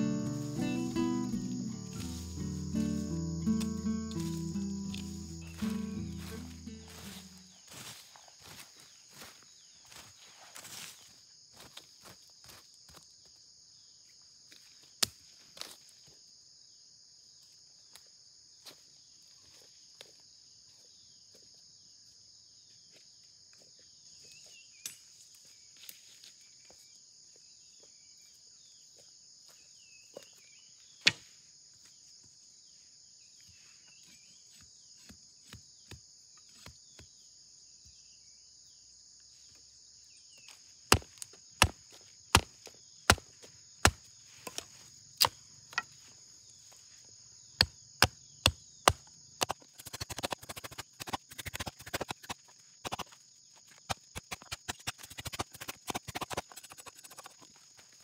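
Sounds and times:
insects droning: 0.0 - 58.0
machete chopping wood: 31.0 - 31.3, 40.9 - 45.9, 47.6 - 53.1, 53.8 - 57.4.

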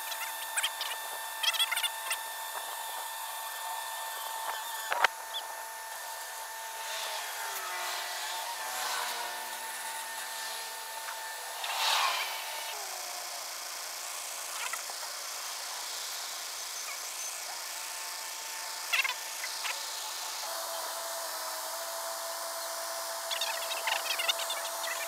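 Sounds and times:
winch whining: 0.0 - 14.0.

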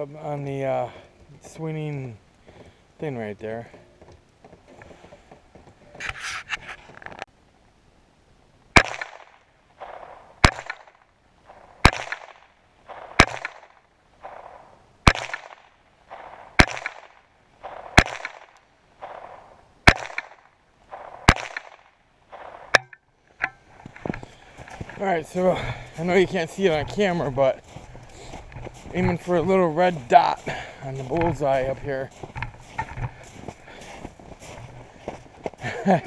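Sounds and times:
rifle shots with echo: 8.8 - 22.8.

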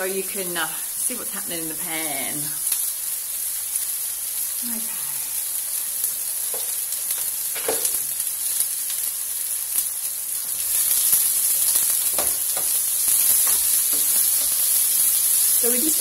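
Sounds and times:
food sizzling in a pan: 0.0 - 16.0.

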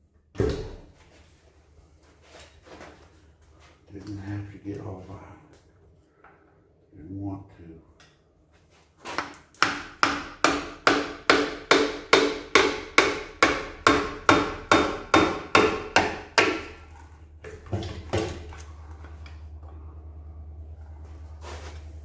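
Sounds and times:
low steady hum: 0.0 - 22.0
hammer striking metal: 9.6 - 16.7.

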